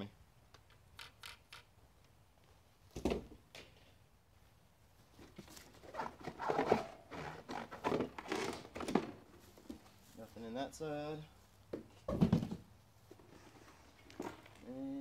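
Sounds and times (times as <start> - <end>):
cardboard scraping and rustling: 5.3 - 9.4.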